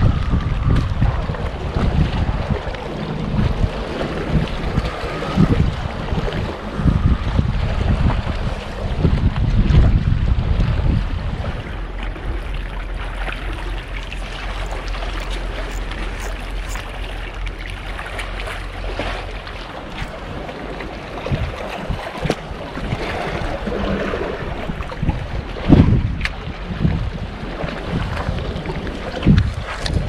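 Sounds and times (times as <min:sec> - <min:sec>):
sea washing against rocks: 0:00.0 - 0:30.0
wind rumbling on microphone: 0:00.0 - 0:30.0.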